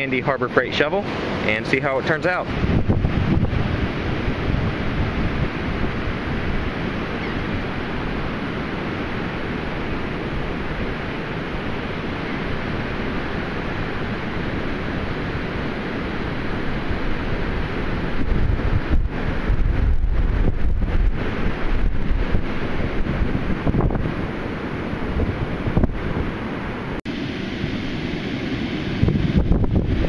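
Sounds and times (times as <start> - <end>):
wind buffeting microphone: 0.0 - 27.0, 27.6 - 30.0
surf rushing: 0.0 - 30.0.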